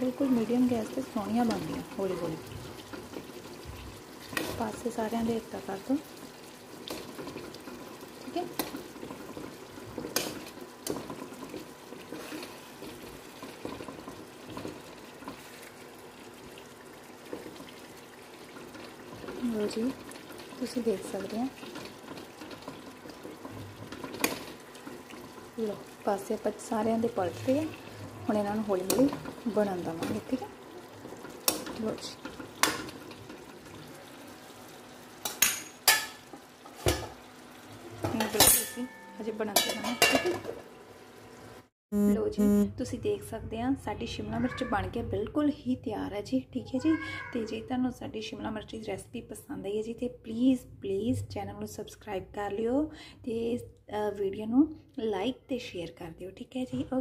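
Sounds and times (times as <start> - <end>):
peppers sizzling in oil: 0.0 - 41.7
steel spoon scraping a pan: 38.2 - 40.4.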